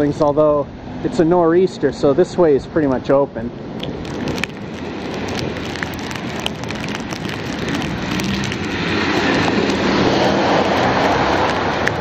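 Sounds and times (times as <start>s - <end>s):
car on slushy street: 3.6s - 12.0s
wind and blowing snow on camera: 3.8s - 12.0s.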